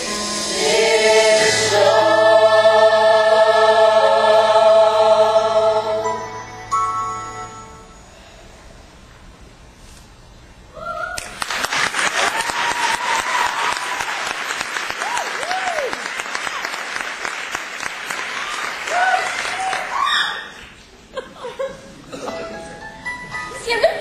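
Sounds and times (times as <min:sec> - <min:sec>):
shouted whoops: 0:10.7 - 0:11.4, 0:12.2 - 0:14.2, 0:15.0 - 0:16.1, 0:18.4 - 0:20.6
audience applauding and cheering: 0:11.2 - 0:20.8.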